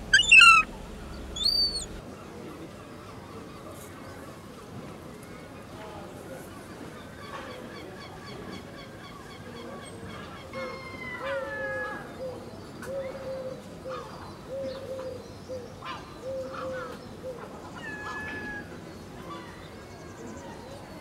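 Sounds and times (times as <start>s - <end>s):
gulls drawn-out falling calls: 0.0s - 2.0s, 17.7s - 19.5s
gulls short low calls: 0.0s - 2.0s.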